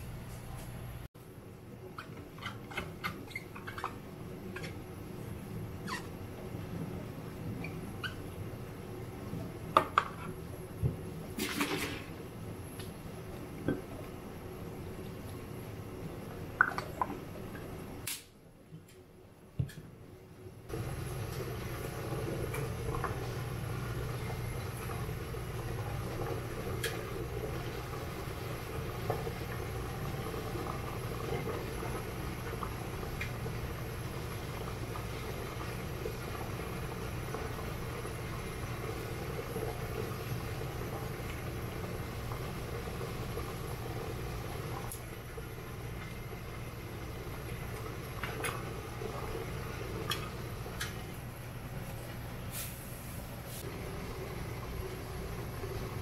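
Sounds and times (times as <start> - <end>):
water boiling in metal pot: 13.8 - 17.8, 20.7 - 56.0.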